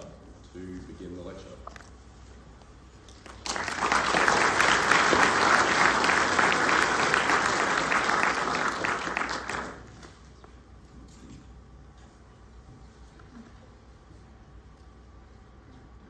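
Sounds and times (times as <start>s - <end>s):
audience clapping: 3.1s - 10.1s.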